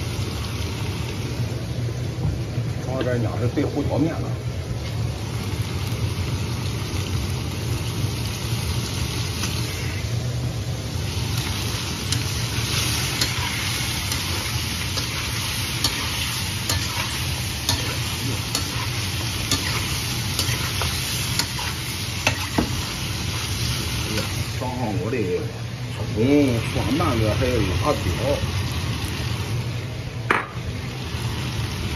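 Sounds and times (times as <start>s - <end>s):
ribs sizzling in a wok: 0.0s - 31.9s
steady low hum: 7.4s - 31.9s
spatula scraping pan: 12.2s - 23.6s.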